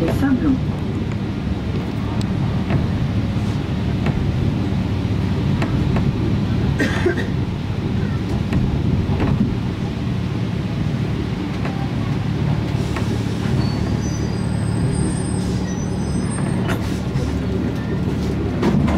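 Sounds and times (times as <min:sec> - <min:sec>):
metro train rumble: 0:00.0 - 0:18.9.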